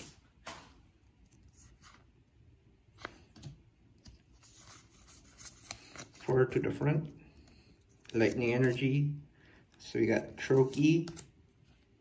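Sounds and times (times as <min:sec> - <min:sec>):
trading cards being handled: 0:02.8 - 0:09.1, 0:10.1 - 0:12.0.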